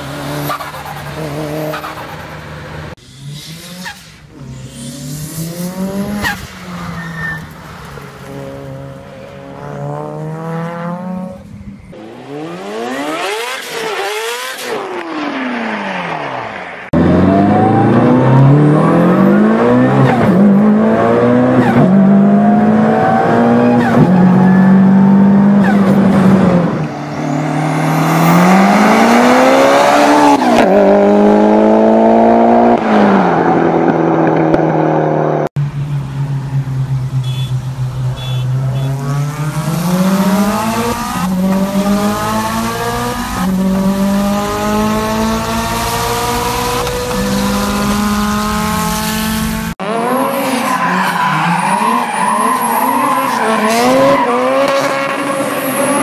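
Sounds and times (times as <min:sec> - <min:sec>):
turbocharged car engine at full throttle: 0:09.6 - 0:52.1.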